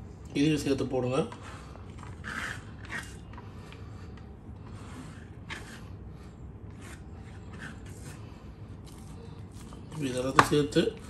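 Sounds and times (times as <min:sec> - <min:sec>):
leaves scraping into a bowl: 0:01.6 - 0:03.4.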